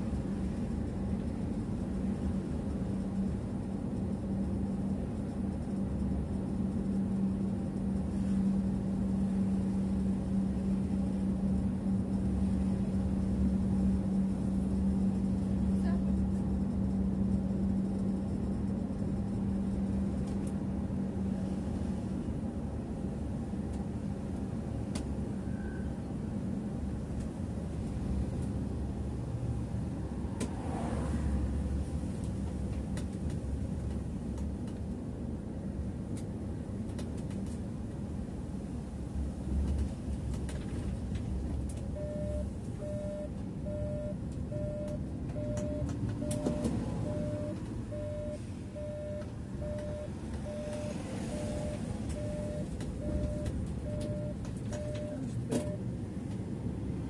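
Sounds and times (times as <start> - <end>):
bus engine and road rumble: 0.0 - 57.0
turn signal beeping: 41.9 - 55.8.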